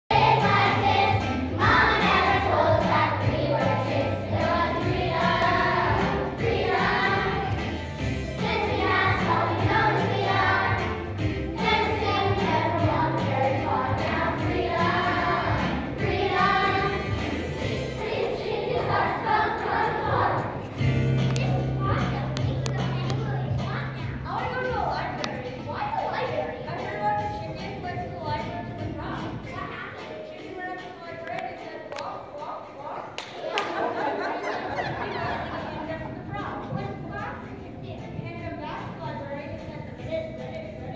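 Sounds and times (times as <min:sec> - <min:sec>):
children singing: 0:00.1 - 0:20.8
instrumental accompaniment with bass: 0:20.2 - 0:26.2.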